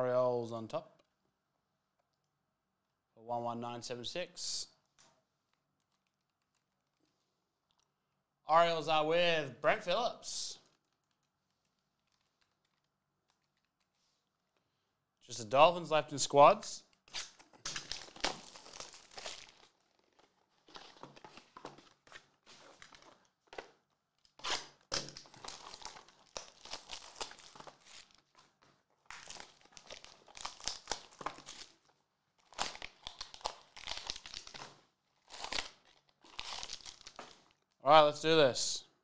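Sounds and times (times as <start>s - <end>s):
plastic wrap crinkling and tearing: 10.6s - 14.0s, 16.9s - 37.8s
foil packs crinkling: 17.2s - 37.8s.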